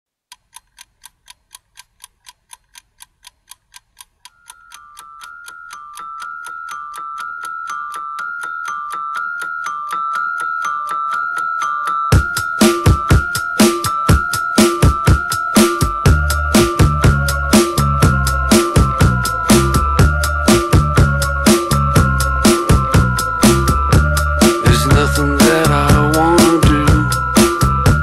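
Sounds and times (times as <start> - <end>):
ticking beat: 0.4 - 28.0
electronic keyboard riff: 4.8 - 28.0
heavy beats: 12.2 - 28.0.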